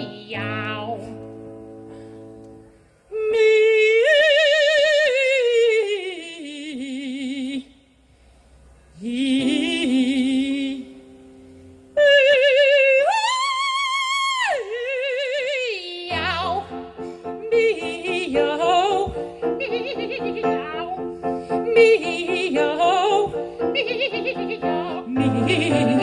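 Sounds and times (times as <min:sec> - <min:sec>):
female operatic singing: 0:00.0 - 0:01.2, 0:03.1 - 0:07.7, 0:09.0 - 0:11.0, 0:12.0 - 0:26.0
digital piano: 0:00.0 - 0:02.7, 0:16.1 - 0:26.0.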